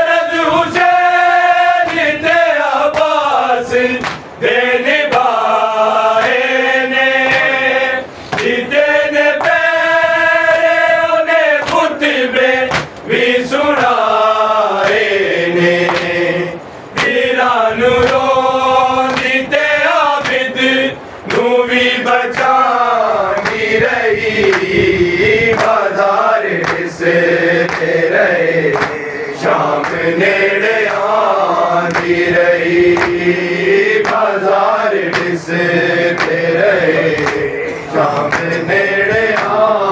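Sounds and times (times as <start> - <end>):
men chanting a lament: 0.0 - 39.9
hands slapping chests: 4.0 - 4.2, 8.3 - 8.6, 12.7 - 13.0, 15.9 - 16.2, 19.1 - 19.4, 20.2 - 20.4, 26.6 - 26.8, 28.7 - 29.1, 31.9 - 32.1, 32.9 - 33.2, 33.9 - 34.3, 36.1 - 36.4, 37.1 - 37.5, 38.1 - 39.6.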